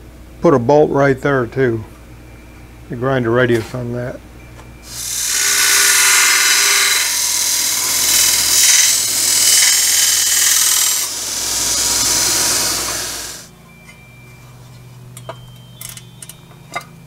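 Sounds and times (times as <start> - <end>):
belt grinder grinding metal: 4.9 - 13.5.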